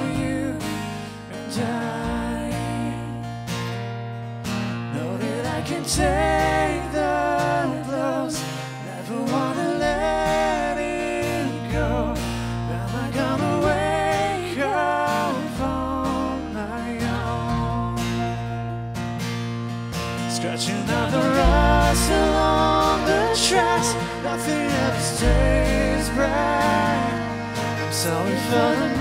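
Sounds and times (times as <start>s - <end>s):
strummed acoustic guitar: 0.0s - 29.0s
deep sustained low notes: 9.7s - 19.1s, 20.9s - 29.0s
wavering melody line: 21.0s - 29.0s.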